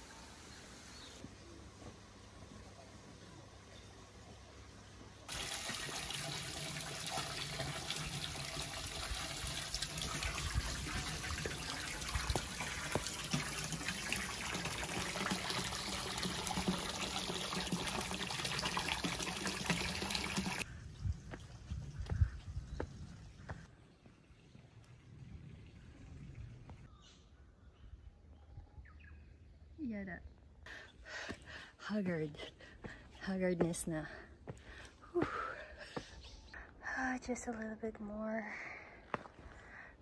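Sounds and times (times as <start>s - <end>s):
running water: 5.2s - 20.6s
footsteps on wet stone steps: 11.0s - 13.6s, 21.2s - 24.2s, 31.1s - 31.6s, 32.2s - 36.3s, 39.0s - 39.6s.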